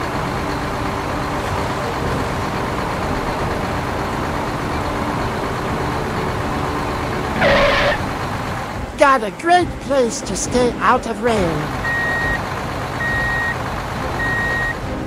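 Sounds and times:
short horn blast: 7.3s - 8.2s.

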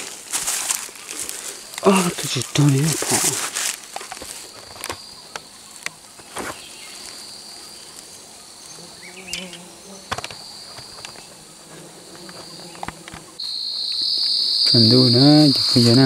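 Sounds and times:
twigs snapping and rustling: 0.0s - 7.2s
insects whining: 0.0s - 16.0s.

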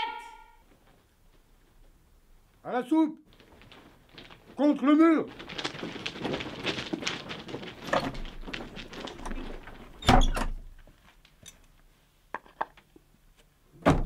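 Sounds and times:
shuffling feet: 3.3s - 10.0s.

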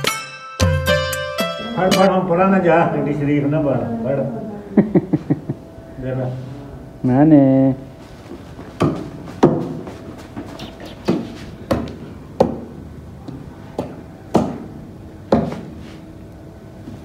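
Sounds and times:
sharp knocks: 8.8s - 9.8s, 11.0s - 12.8s, 13.8s - 15.8s.

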